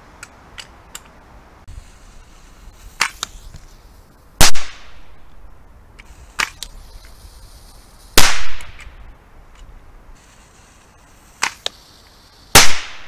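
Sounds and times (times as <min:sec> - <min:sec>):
loud sharp bangs with echo: 0:08.2 - 0:08.8, 0:12.6 - 0:13.0.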